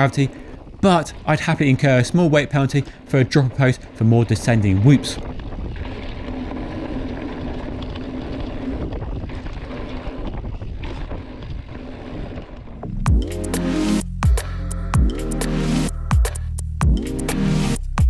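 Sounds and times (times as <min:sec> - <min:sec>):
bike tyres rumbling on gravel: 0:00.0 - 0:13.1
wind on microphone: 0:00.0 - 0:13.1.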